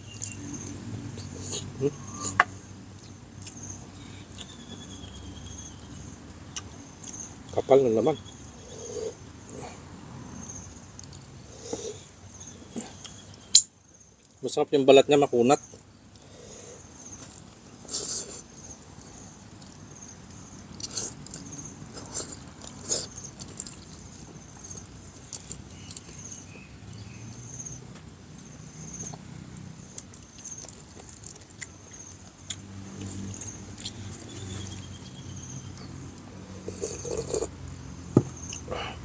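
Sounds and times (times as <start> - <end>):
man chewing and lip smacking: 0.1 - 3.7, 6.5 - 7.6, 17.2 - 26.3, 29.9 - 35.1, 35.7 - 37.5.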